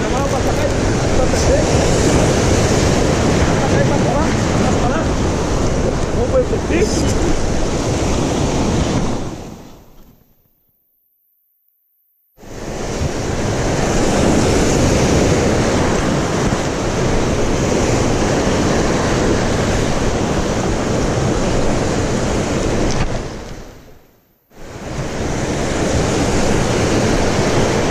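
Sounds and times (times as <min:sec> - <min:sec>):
surf breaking over rocks: 0:00.0 - 0:10.2
wind on microphone: 0:00.0 - 0:10.2, 0:12.4 - 0:27.9.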